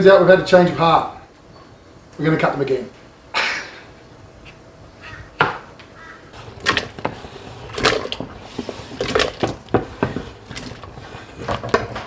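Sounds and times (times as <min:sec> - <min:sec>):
potatoes dropping into water: 0:06.5 - 0:09.8, 0:10.4 - 0:12.0.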